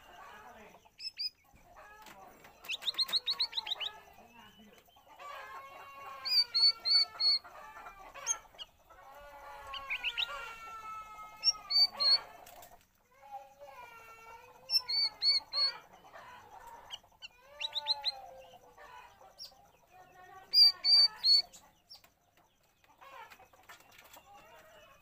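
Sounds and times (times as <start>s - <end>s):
bulbul singing: 0.6s - 1.6s, 2.4s - 5.1s, 6.1s - 7.5s, 11.1s - 12.3s, 14.6s - 18.6s, 19.3s - 22.1s.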